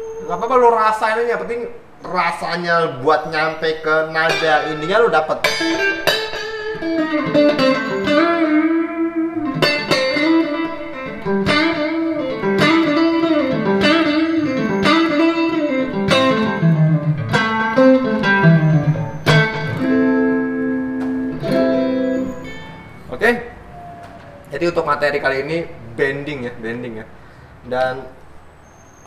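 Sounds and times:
electric guitar blues licks: 3.6 - 24.5.

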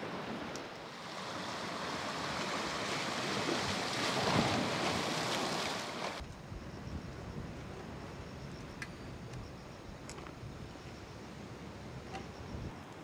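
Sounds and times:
ocean surf washing ashore: 0.0 - 6.2.

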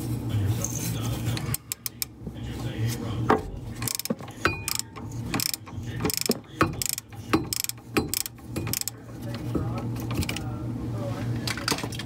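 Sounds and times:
ratchet wrench clicking: 1.6 - 2.1, 3.8 - 9.0.

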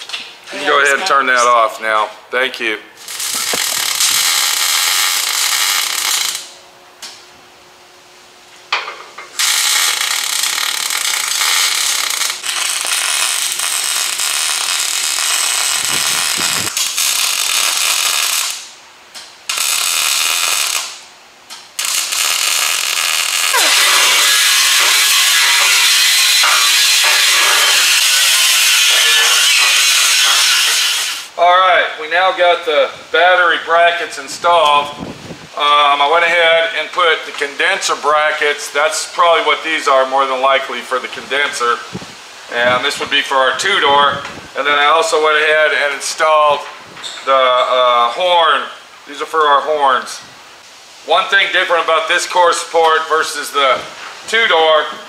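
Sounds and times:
welder crackling and buzzing: 3.0 - 7.2, 8.7 - 31.4.

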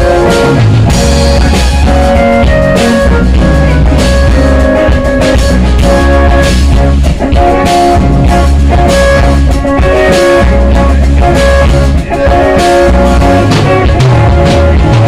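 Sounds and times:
drum kit: 0.0 - 15.0
electric guitar: 0.0 - 15.0
heavy bass: 0.0 - 15.0
keyboard: 0.0 - 15.0.

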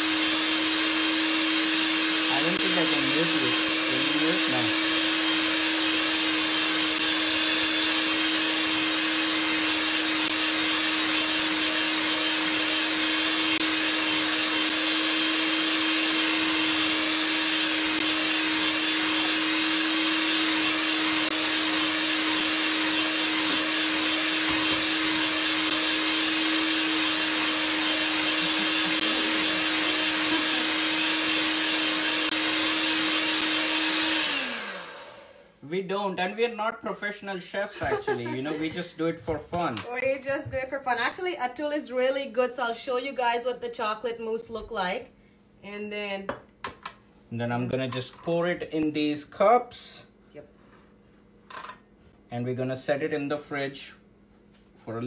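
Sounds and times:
electric hand mixer running: 0.0 - 35.6, 37.8 - 38.9.

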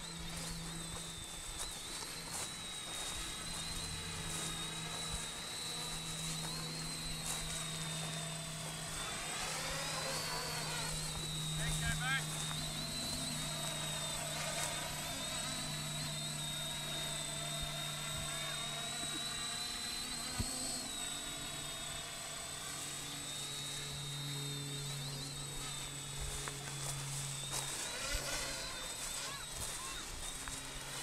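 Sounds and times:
drone propellers buzzing: 0.0 - 31.0.

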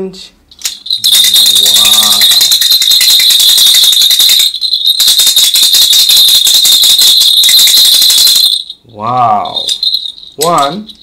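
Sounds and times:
plastic clapper toy clattering: 0.5 - 8.6
steady high-pitched tone: 1.0 - 8.6.

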